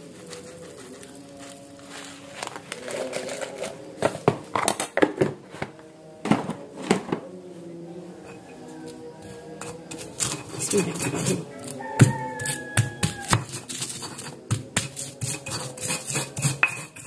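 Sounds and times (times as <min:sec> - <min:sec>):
plastic bag rustling: 0:00.0 - 0:04.6.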